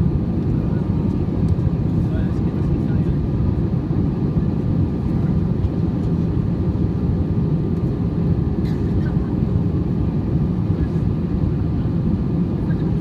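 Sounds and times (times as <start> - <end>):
airliner cabin rumble: 0.0 - 13.0.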